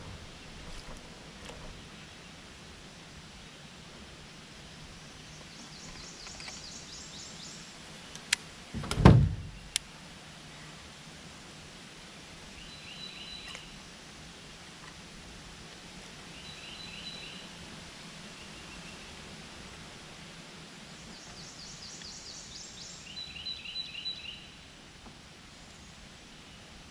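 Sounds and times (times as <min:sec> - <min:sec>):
birds chirping: 0:04.7 - 0:08.2, 0:20.9 - 0:24.6
loud thump in a boat: 0:08.8 - 0:09.6.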